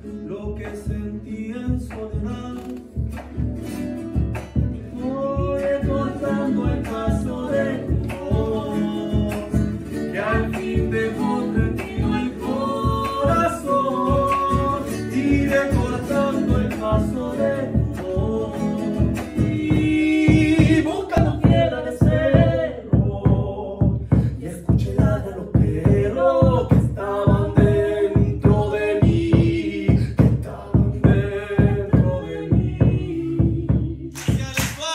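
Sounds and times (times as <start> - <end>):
strummed acoustic guitar: 0.0 - 34.9
person singing: 0.2 - 3.3, 4.4 - 34.9
large drum beating: 19.0 - 34.4.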